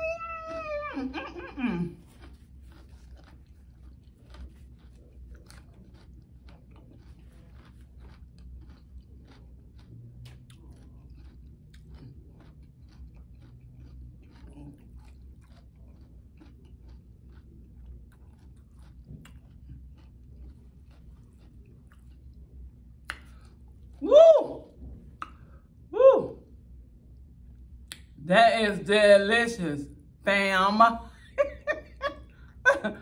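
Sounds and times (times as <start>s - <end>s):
crunchy chewing: 0.0s - 24.0s.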